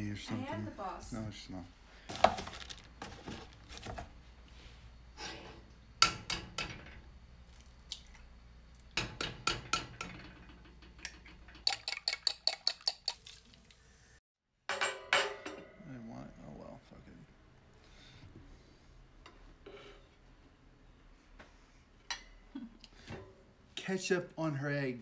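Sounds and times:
eggs cracked against a ceramic dish: 0:11.0 - 0:13.3.

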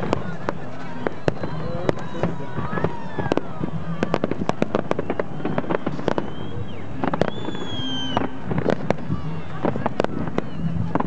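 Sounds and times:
fireworks bangs and crackles: 0:00.0 - 0:11.0
high falling whistle: 0:05.0 - 0:08.4.

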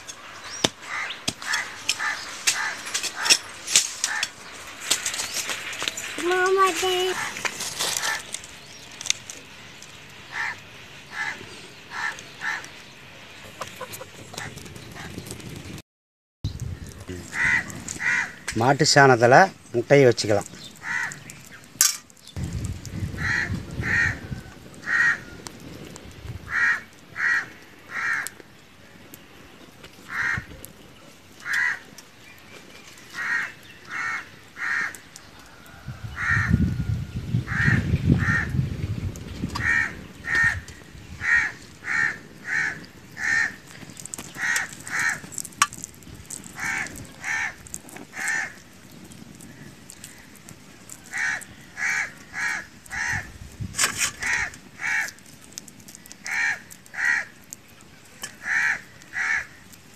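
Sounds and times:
bird calling: 0:00.0 - 0:03.4.

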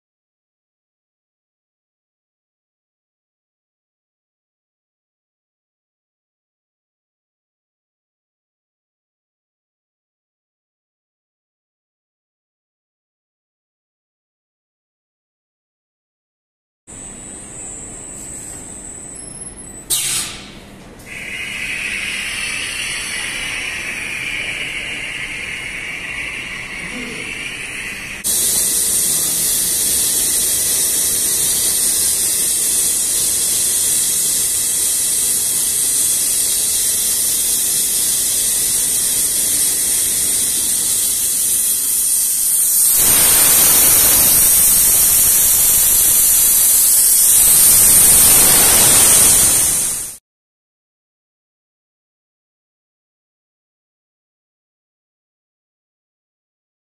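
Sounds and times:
air hiss from vacuum system: 0:21.1 - 0:50.2.

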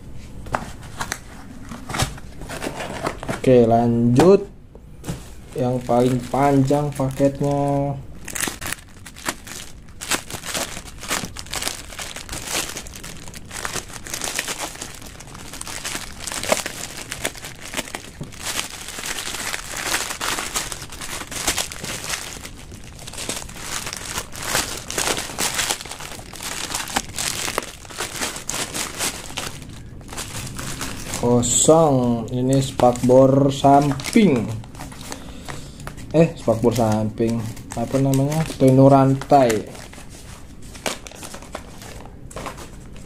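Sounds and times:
plastic packaging crinkling: 0:05.5 - 0:43.0.

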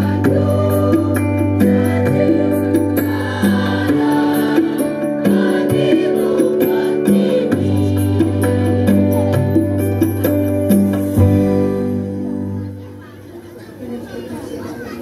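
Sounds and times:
choir singing: 0:00.0 - 0:09.0
instrumental accompaniment: 0:00.0 - 0:12.9.

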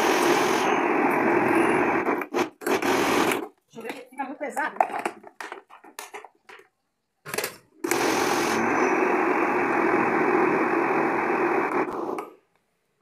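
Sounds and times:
blender motor running: 0:00.0 - 0:03.4, 0:07.9 - 0:12.2.

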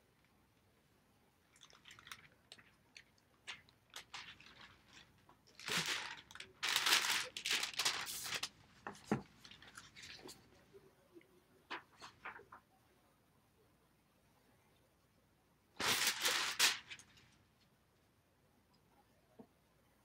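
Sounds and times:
sheet crinkling and rustling: 0:03.4 - 0:10.5, 0:15.8 - 0:17.4.

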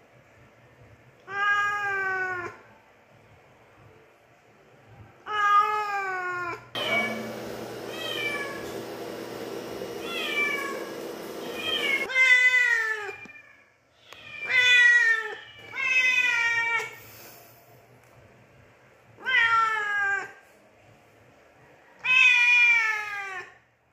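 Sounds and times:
cat meowing: 0:07.9 - 0:08.7, 0:10.0 - 0:17.0, 0:19.2 - 0:20.4, 0:22.0 - 0:23.5.

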